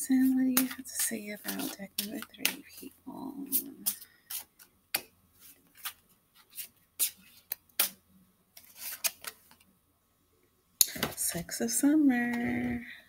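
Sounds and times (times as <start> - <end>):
cards rustling: 0.5 - 2.9, 3.8 - 8.0, 8.6 - 9.6
cards snapping and flicking: 7.0 - 8.0.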